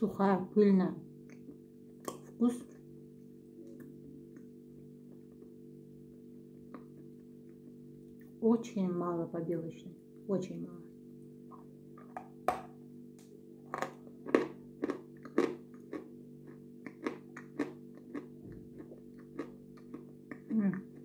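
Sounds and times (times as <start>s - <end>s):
crunchy bites and chewing: 13.6s - 21.0s.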